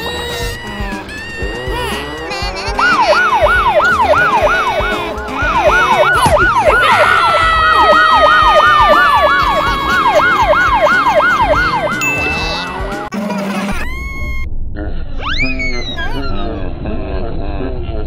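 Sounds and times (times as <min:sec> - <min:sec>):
police siren yelp: 0:02.8 - 0:13.1.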